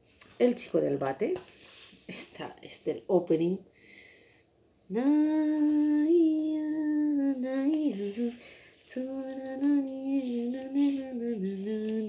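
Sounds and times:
woman singing wordless melody: 0:04.9 - 0:12.0.

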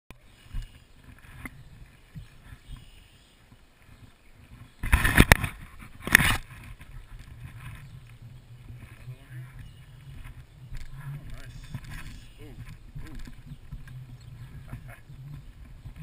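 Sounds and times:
rubbing and scraping on camera: 0:03.9 - 0:16.0.

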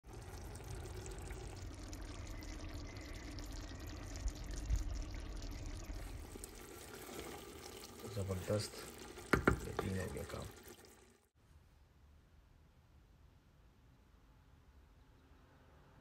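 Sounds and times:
stew bubbling in a pot: 0:00.0 - 0:11.3
soft knocks: 0:09.3 - 0:09.9.

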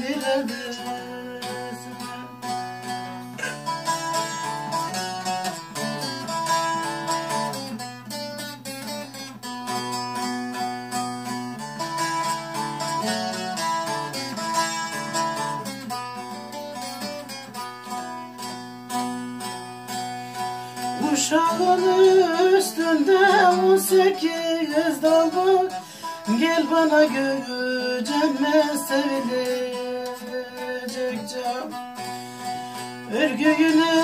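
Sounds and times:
person singing: 0:00.0 - 0:06.4, 0:20.7 - 0:34.0
plucked long-necked lute melody: 0:00.0 - 0:34.0.

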